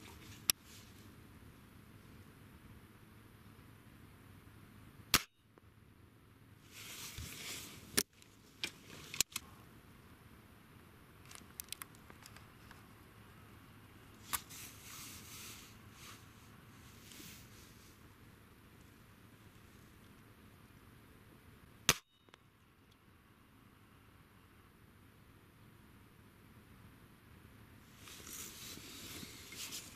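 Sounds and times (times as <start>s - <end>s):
rustling handling noise: 6.7s - 9.4s, 27.9s - 29.9s.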